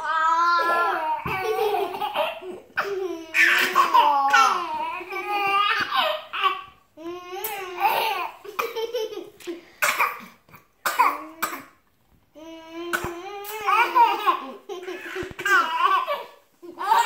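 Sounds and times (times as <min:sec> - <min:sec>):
baby giggling: 0:00.6 - 0:06.6, 0:12.9 - 0:17.0.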